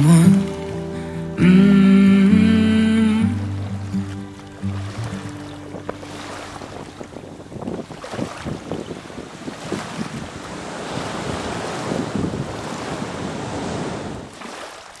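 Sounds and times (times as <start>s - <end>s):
surf washing onto beach: 0.0s - 15.0s
wind buffeting microphone: 3.7s - 14.4s.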